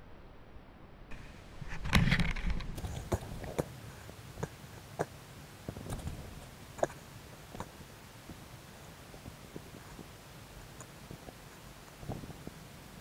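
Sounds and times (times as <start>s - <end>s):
faint hiss: 2.7s - 13.0s.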